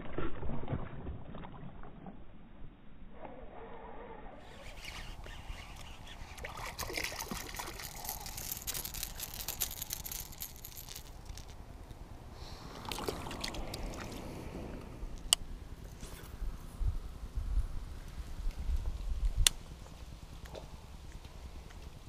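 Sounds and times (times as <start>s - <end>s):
fishing lure splashing water: 4.4s - 12.0s, 12.7s - 14.6s.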